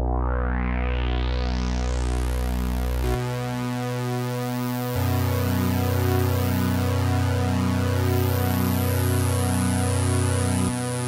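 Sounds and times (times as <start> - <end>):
synthesizer chord: 0.0 - 11.0.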